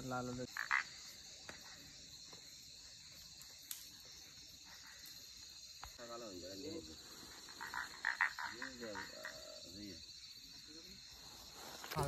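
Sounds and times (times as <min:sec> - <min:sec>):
crickets chirring: 0:00.0 - 0:12.0
faint click: 0:03.6 - 0:03.9.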